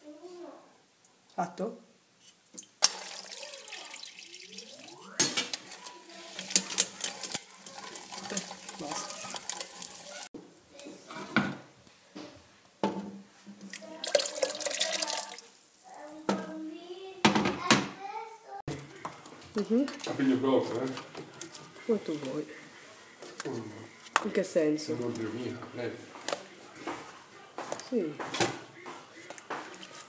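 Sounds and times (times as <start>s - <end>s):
metal pots and utensils clinking: 2.6s - 10.3s, 18.7s - 22.4s
water running and splashing: 2.6s - 10.4s, 13.6s - 16.7s.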